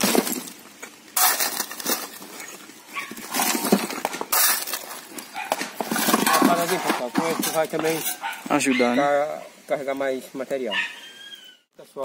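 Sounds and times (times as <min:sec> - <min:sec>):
bricks clattering into wheelbarrow: 0:00.0 - 0:08.3
shovel scraping brick rubble: 0:00.0 - 0:08.5.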